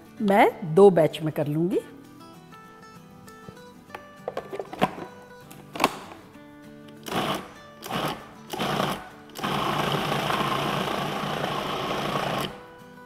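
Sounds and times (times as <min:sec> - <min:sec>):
electric food processor grinding: 0:07.1 - 0:12.6.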